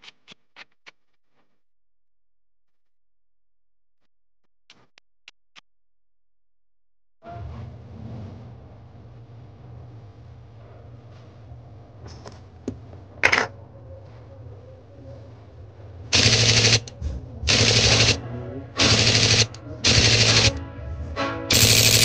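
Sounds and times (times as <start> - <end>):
camera shutter clicking: 16.2 - 16.9, 18.8 - 20.6, 21.5 - 22.0.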